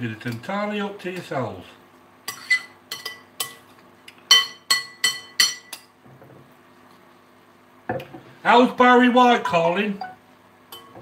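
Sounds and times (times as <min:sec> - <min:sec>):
metal spoon clinking on glass bowl: 0:04.3 - 0:05.9, 0:10.7 - 0:11.0.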